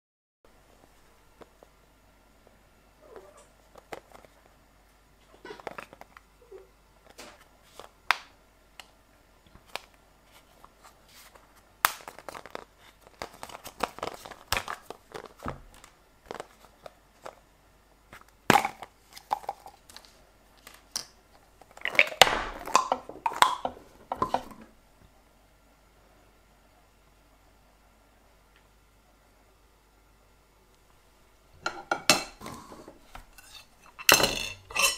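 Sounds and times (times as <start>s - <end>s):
plastic crinkling: 9.6s - 17.4s.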